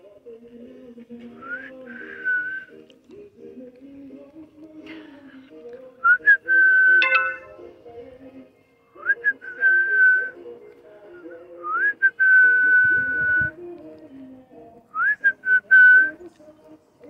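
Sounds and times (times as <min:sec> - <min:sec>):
person whistling: 0:06.2 - 0:07.6.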